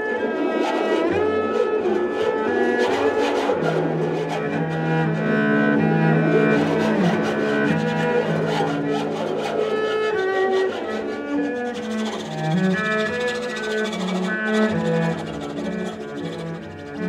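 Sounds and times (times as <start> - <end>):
cello bowing sustained notes: 0.0 - 17.0.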